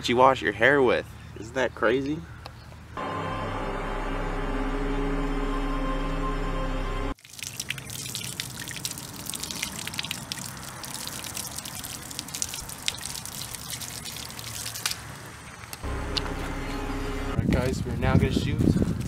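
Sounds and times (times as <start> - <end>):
background music: 3.0 - 7.2
water from hose splashing on dirt: 7.2 - 15.9.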